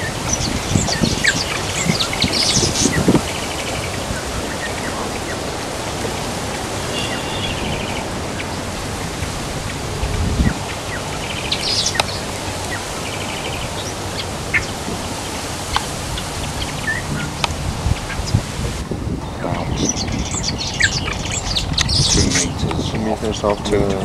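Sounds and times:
birds chattering and chirping: 0.0s - 24.0s
wind noise: 0.0s - 24.0s.

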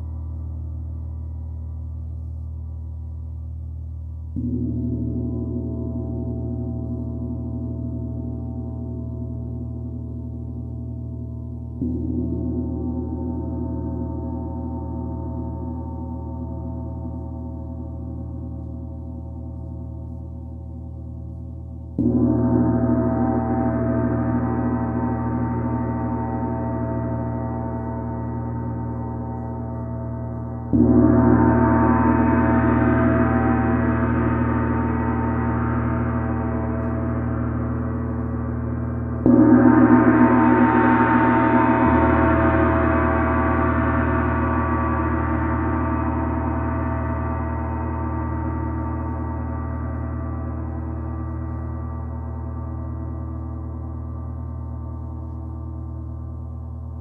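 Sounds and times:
gong struck with mallet ringing: 28.7s - 49.3s.

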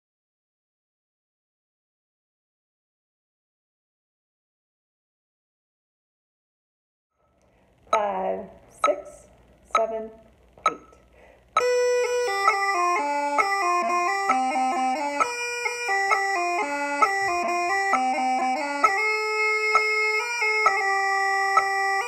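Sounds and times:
bagpipes playing in harmony: 11.6s - 22.0s.

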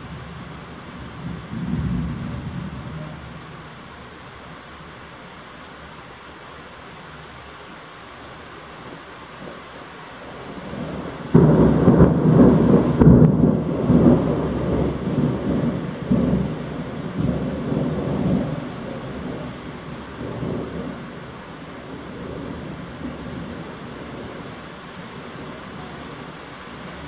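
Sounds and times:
thunder rumbling: 0.0s - 3.5s, 10.2s - 27.0s
heavy rain hissing: 0.0s - 27.0s.

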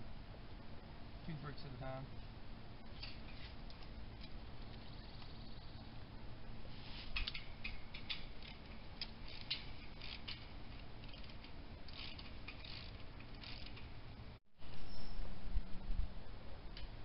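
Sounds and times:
chain-link fence clicking and creaking: 7.1s - 13.9s.

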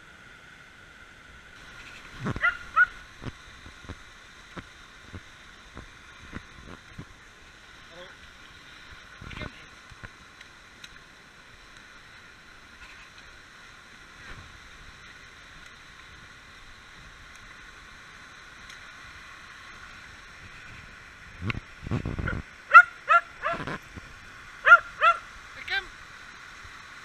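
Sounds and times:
stream rushing: 0.0s - 27.0s
dog yipping: 2.4s - 2.9s, 22.7s - 23.6s, 24.6s - 25.2s.

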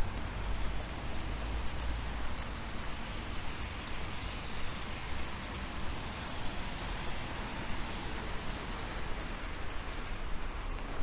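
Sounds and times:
faint high whistling tone: 5.6s - 8.9s.

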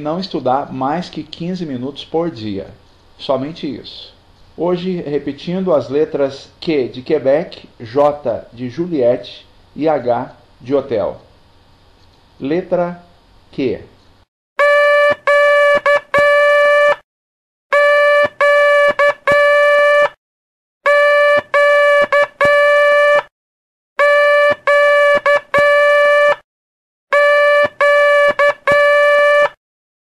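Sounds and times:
morse code beeps: 14.6s - 17.0s, 17.7s - 20.2s, 20.9s - 23.3s, 24.0s - 26.4s, 27.1s - 29.6s.

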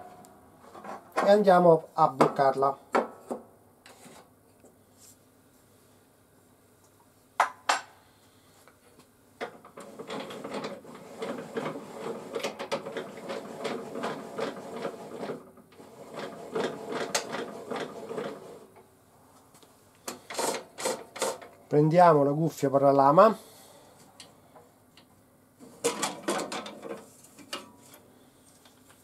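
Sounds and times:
hand crank whirring rasp: 9.8s - 18.7s, 20.1s - 21.4s.

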